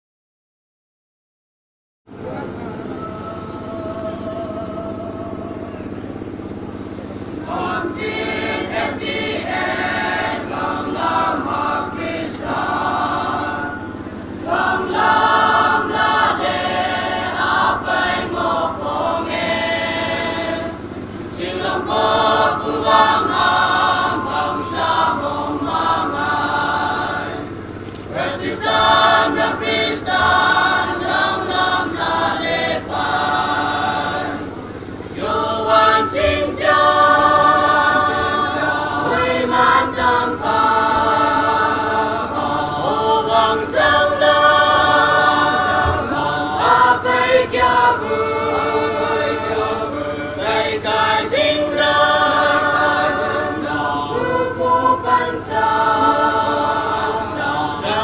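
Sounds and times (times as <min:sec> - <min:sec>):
choir singing a hymn: 0:02.1 - 0:58.0.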